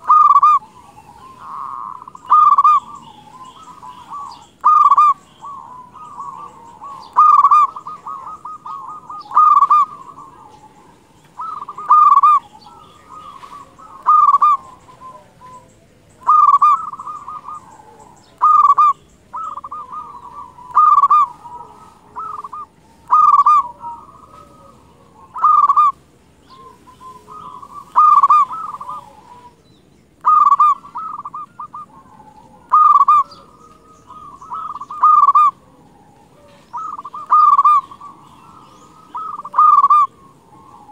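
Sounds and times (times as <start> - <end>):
dove cooing: 0.0 - 40.9.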